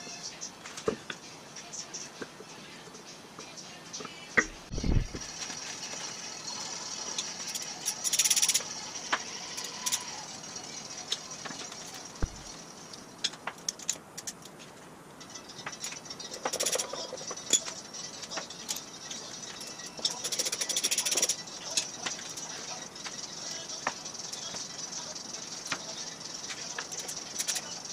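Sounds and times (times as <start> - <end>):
tools clinking against metal: 7.1 - 8.7, 9.6 - 10.2, 13.2 - 14.6, 15.2 - 23.2, 26.6 - 27.7.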